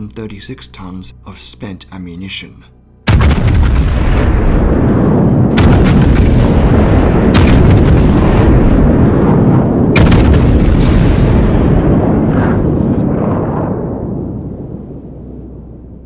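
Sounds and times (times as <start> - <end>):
artillery blasts: 3.1 - 15.0
artillery rumble: 3.1 - 15.4.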